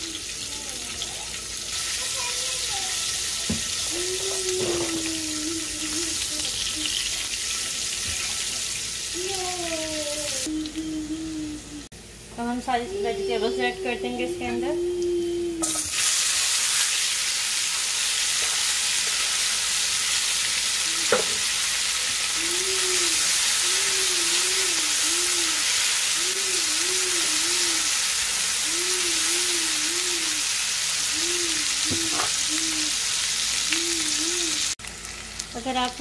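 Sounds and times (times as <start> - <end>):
peppers sizzling in hot oil: 0.0 - 10.8, 12.0 - 36.0.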